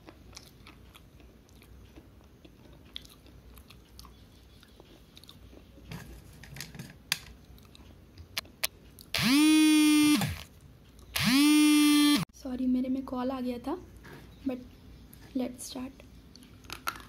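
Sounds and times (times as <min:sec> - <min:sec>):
crunching and chewing: 0:00.0 - 0:05.9, 0:07.4 - 0:09.2, 0:16.3 - 0:17.0
mobile phone vibrating: 0:09.2 - 0:10.4, 0:11.2 - 0:12.2.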